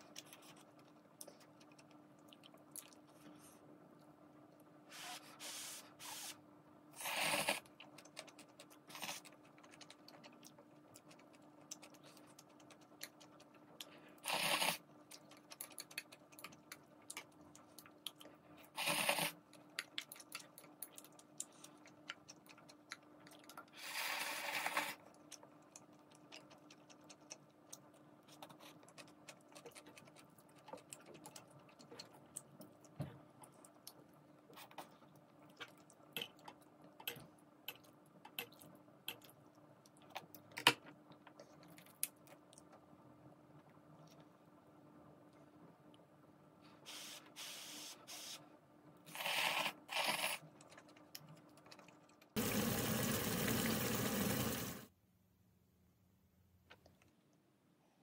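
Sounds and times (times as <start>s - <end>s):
chewing: 0.0s - 3.5s, 7.6s - 14.0s, 15.0s - 23.8s, 24.6s - 40.5s, 50.2s - 52.4s
slurping noodles: 7.0s - 7.7s, 14.2s - 14.8s, 18.8s - 19.4s, 23.8s - 25.0s, 49.1s - 50.5s.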